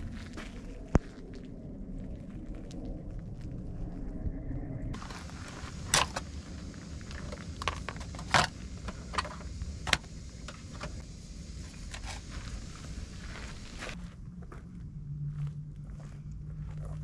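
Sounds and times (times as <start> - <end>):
low rumble: 0.0 - 17.0
plastic caddy and jars clattering: 5.0 - 6.4, 7.0 - 11.0.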